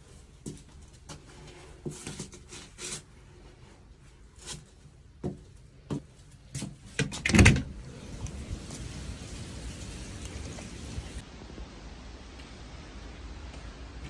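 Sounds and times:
front door clunk and rattle: 0:07.0 - 0:07.8.

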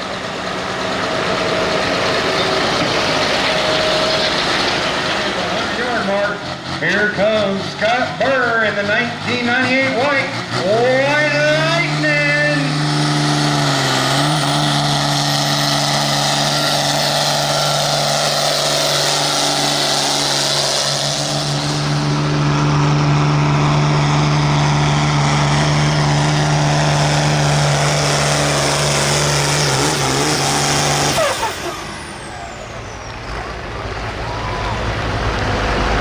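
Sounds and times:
tractor diesel engine at full throttle: 0:00.0 - 0:36.0.

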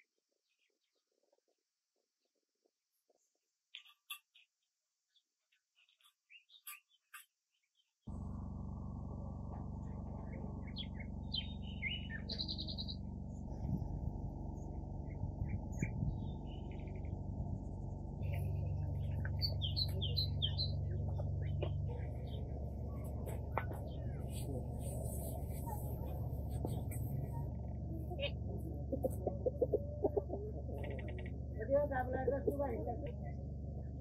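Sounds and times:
small birds chirping: 0:03.0 - 0:08.0, 0:09.8 - 0:34.0
steady low hum: 0:08.1 - 0:34.0.

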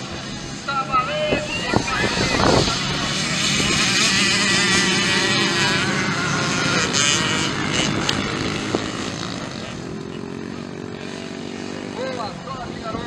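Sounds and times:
motorbike engines revving: 0:00.0 - 0:13.0.

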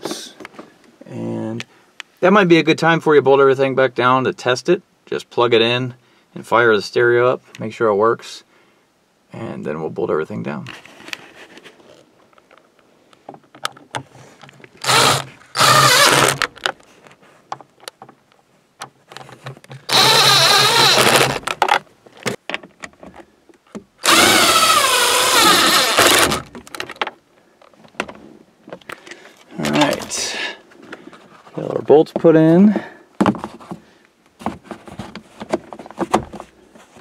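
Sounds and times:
power drill driving bolts: 0:14.8 - 0:16.7, 0:19.8 - 0:21.7, 0:24.0 - 0:26.8.

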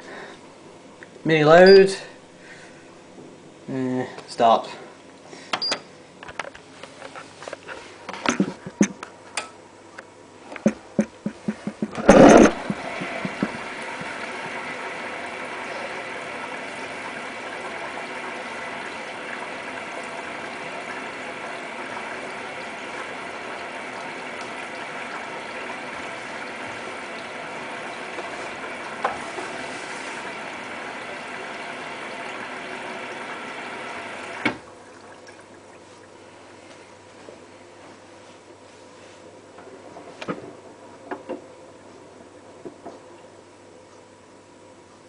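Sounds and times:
washing machine running: 0:10.4 - 0:37.2.

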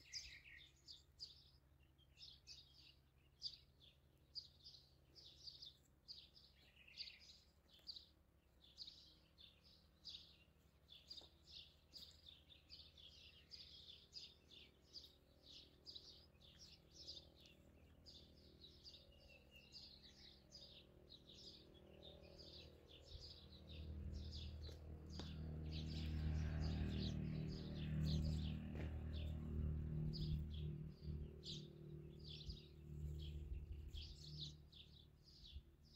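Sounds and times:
small birds chirping: 0:00.0 - 0:35.9
low hum: 0:11.4 - 0:35.7.

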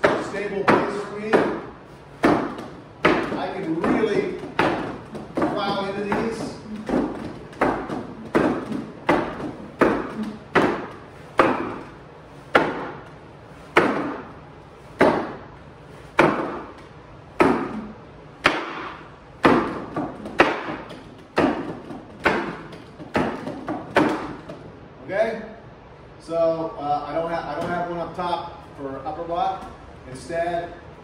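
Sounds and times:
wooden knocks on striking post: 0:02.2 - 0:11.9, 0:12.5 - 0:13.0, 0:13.8 - 0:14.3, 0:15.0 - 0:15.4, 0:16.2 - 0:16.8, 0:18.4 - 0:24.6.

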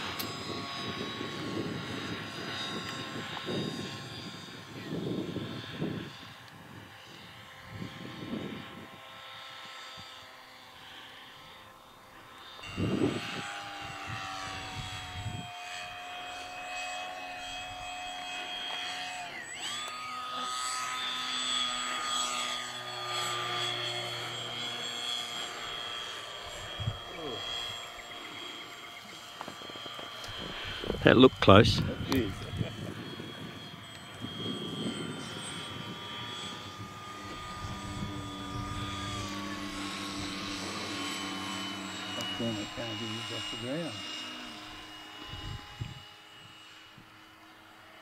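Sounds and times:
wind buffeting microphone: 0:00.0 - 0:09.1, 0:12.6 - 0:15.5, 0:26.5 - 0:43.6, 0:44.6 - 0:46.1
model airplane motor whining: 0:00.0 - 0:48.0.

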